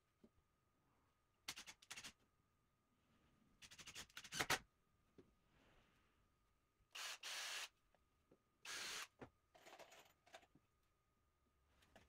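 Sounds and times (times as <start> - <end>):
cordless drill motor running: 7.0 - 7.7, 8.6 - 9.1.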